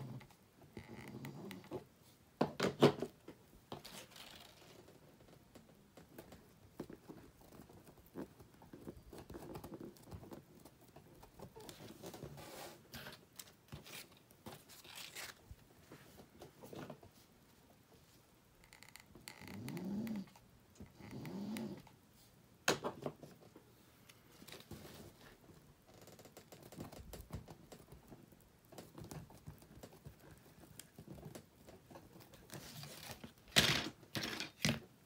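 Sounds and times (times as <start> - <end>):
ribbon and wire rustling: 3.7 - 17.2.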